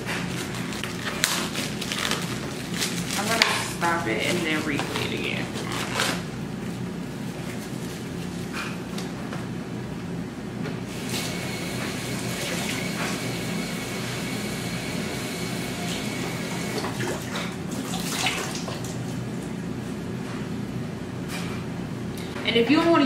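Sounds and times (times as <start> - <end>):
kitchen tap running: 10.9 - 19.1.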